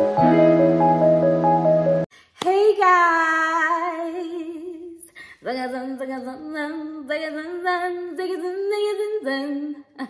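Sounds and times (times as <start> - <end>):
woman singing a melody: 2.4 - 10.0.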